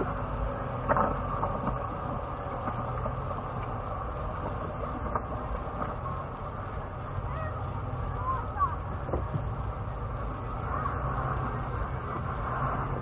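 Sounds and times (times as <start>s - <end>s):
car engine low rumble: 0.0s - 13.0s.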